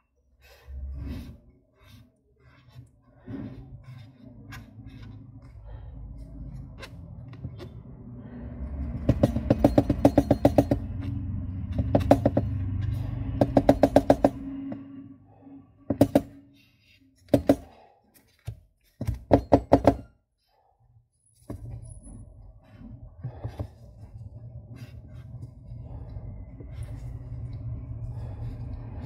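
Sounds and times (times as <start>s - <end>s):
low steady hum: 21.5s - 29.0s.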